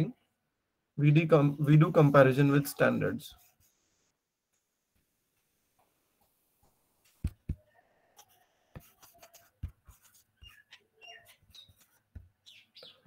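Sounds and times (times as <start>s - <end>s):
stylus tapping on tablet screen: 7.0s - 12.6s.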